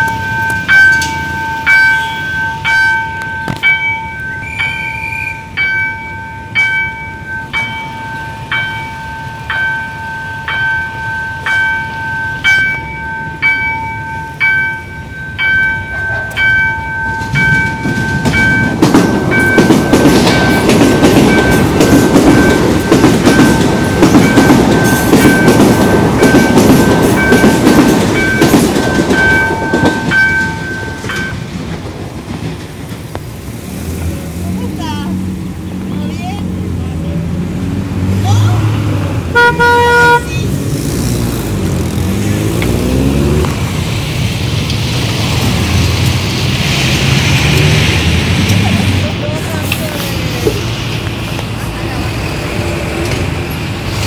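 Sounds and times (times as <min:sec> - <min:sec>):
level-crossing warning bell: 0:00.0 - 0:31.9
train wheels clacking on rails: 0:00.0 - 0:35.4, 0:40.4 - 0:54.0.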